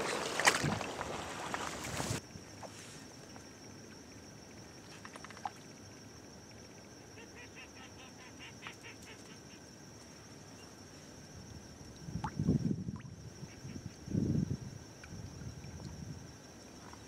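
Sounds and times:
low wind noise: 11.2s - 16.5s.

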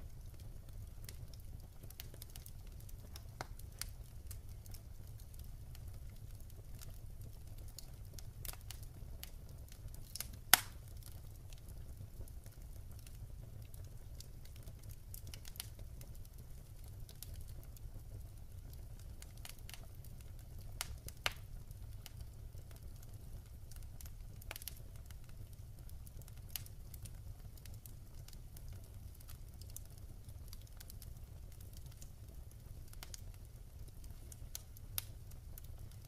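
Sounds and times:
logs crackling in fireplace: 0.0s - 36.0s
low fire rumble: 0.0s - 36.0s
sharp fire pops: 1.0s - 4.0s, 10.0s - 11.0s.

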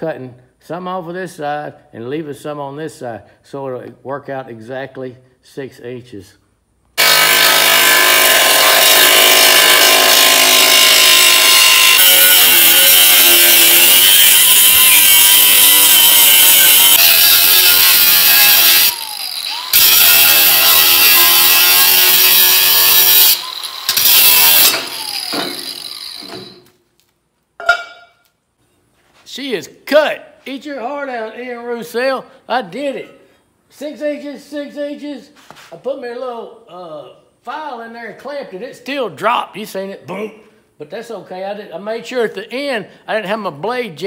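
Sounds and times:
angle grinder cutting steel: 7.0s - 26.7s.

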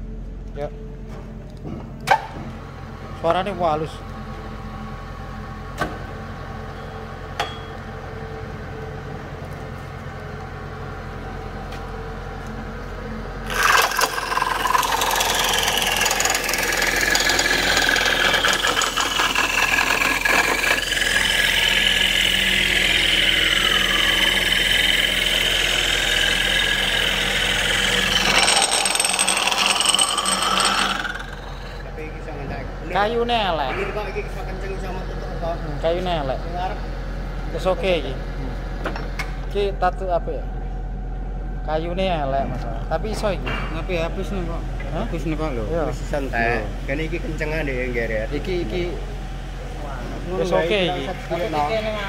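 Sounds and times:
machine humming: 13.0s - 38.8s
cutter head cutting wood: 13.4s - 31.8s.

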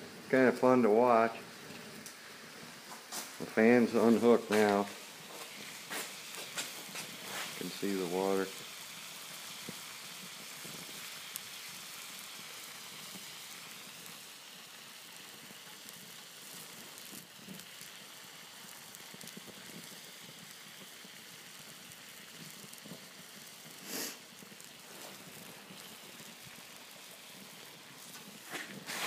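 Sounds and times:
flames crackling: 0.0s - 29.0s
water boiling: 0.0s - 29.0s.

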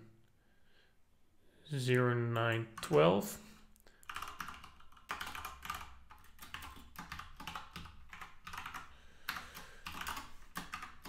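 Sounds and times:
typing on keyboard: 4.0s - 11.0s.

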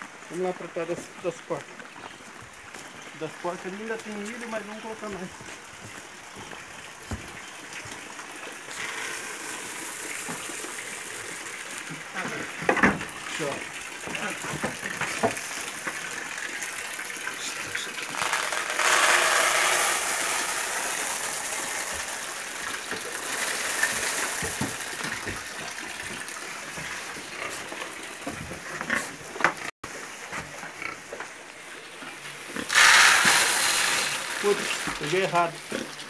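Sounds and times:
corn kernels poured into trough: 8.7s - 11.7s, 17.4s - 25.2s, 32.6s - 35.6s.

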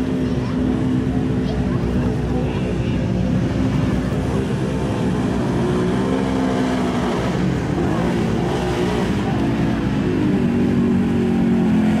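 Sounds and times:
racing engines revving: 0.0s - 12.0s.

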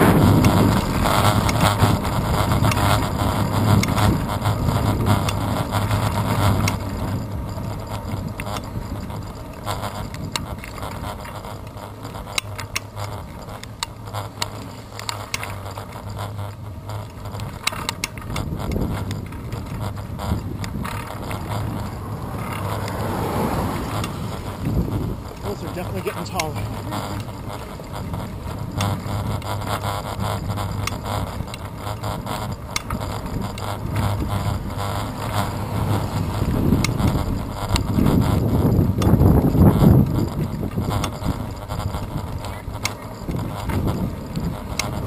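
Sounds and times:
wind rush: 0.0s - 5.3s, 20.0s - 27.2s, 33.0s - 42.4s
bicycle tyre rumble on asphalt: 0.0s - 45.0s
short clicks and rattles: 0.0s - 45.0s.

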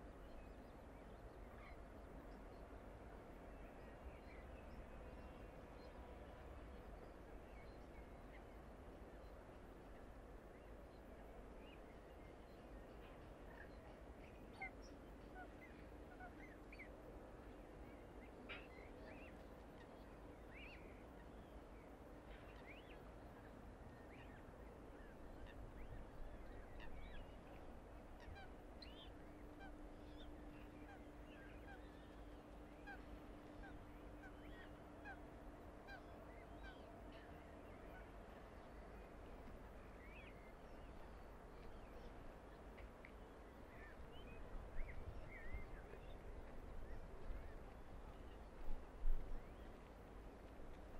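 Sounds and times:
bird calls and chirps: 43.7s - 48.4s.

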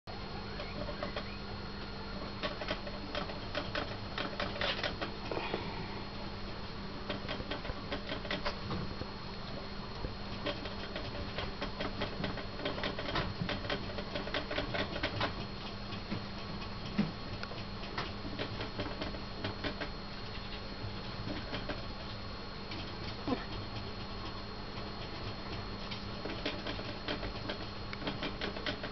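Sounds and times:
hamster claws clicking on plastic mesh: 10.4s - 15.3s, 26.2s - 28.9s.

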